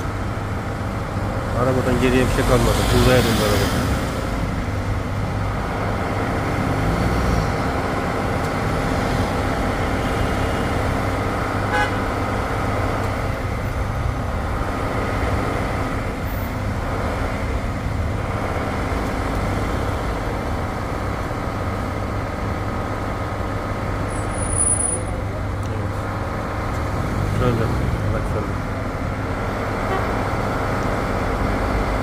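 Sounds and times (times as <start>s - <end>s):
city street traffic: 0.0s - 32.0s
short car horn beep: 11.7s - 12.0s.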